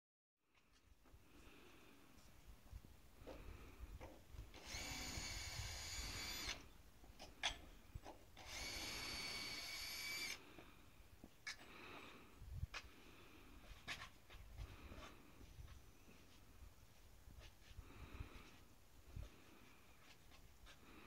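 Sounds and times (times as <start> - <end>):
cordless drill running: 4.5 - 6.7, 8.4 - 10.4.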